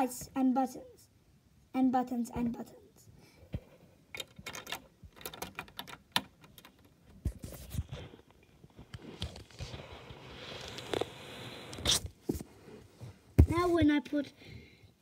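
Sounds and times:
plastic bricks clicking: 0:04.1 - 0:06.9.

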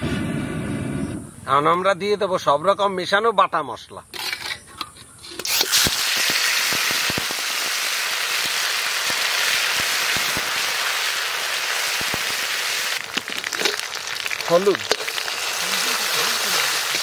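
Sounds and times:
spice paste sizzling in oil: 0:05.5 - 0:17.0.

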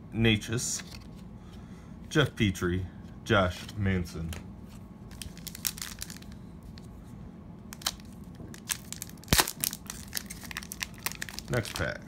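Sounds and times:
foil wrapper crinkling and tearing: 0:05.1 - 0:06.4, 0:07.7 - 0:12.0
foil wrapper snapping: 0:05.1 - 0:06.4, 0:07.7 - 0:12.0.

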